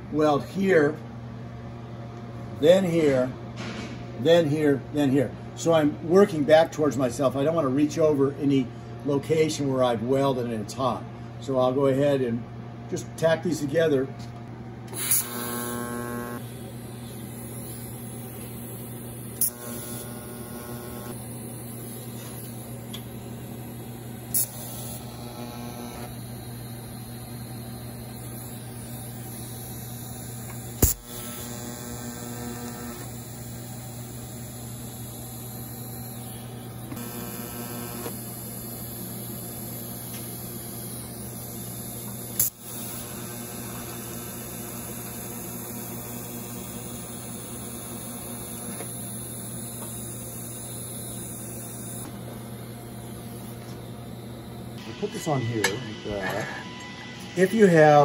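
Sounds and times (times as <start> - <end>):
welder electrical hum: 0.0 - 58.0
welding arc snapping: 14.9 - 16.5, 17.1 - 52.2
welding arc hissing: 14.9 - 56.5.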